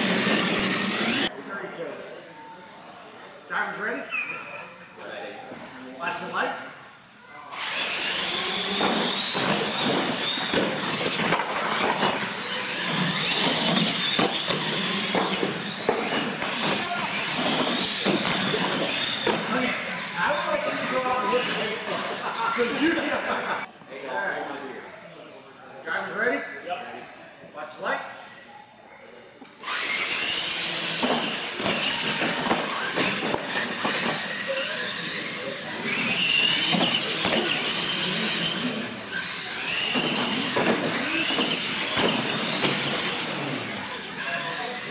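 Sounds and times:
electric motor whine: 0.0s - 1.3s
electric toy truck motors whining: 0.0s - 1.3s, 7.5s - 23.2s, 29.6s - 44.9s
toy trucks hitting ramps: 0.0s - 1.3s, 7.6s - 20.2s, 29.6s - 44.9s
tyre noise on concrete: 7.7s - 21.8s, 29.7s - 35.2s, 35.8s - 44.0s.

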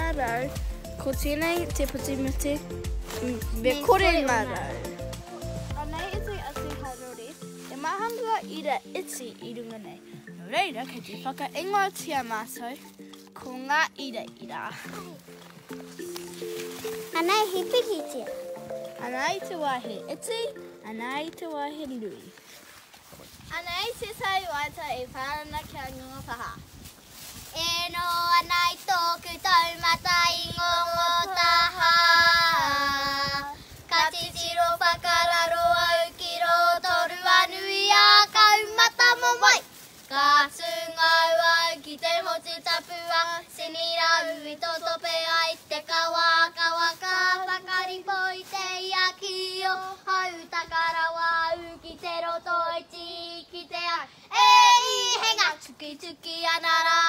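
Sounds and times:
girls singing together: 28.2s - 57.0s.

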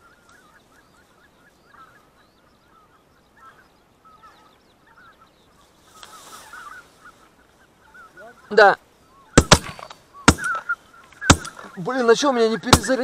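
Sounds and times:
geese calling: 0.0s - 13.0s.

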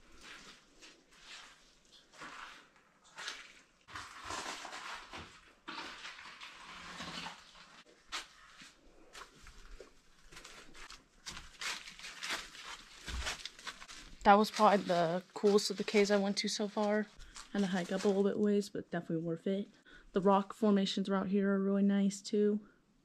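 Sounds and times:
footsteps on rock and dry leaves: 8.2s - 18.4s.

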